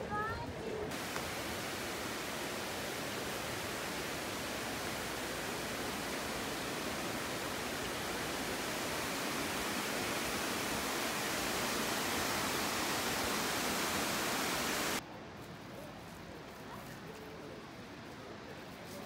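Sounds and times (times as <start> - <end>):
waterfall roaring: 0.9 - 15.0.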